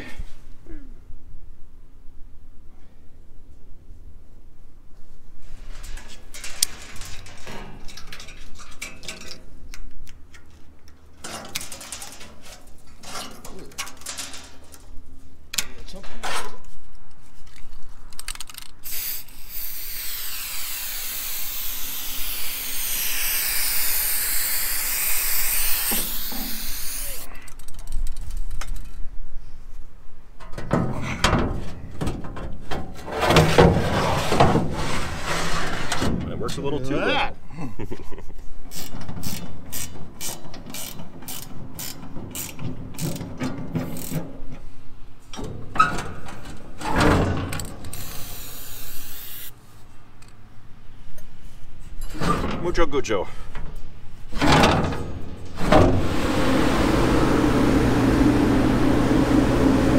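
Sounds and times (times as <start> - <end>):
steel slide gate scraping and rattling: 5.6 - 9.5, 33.0 - 36.2.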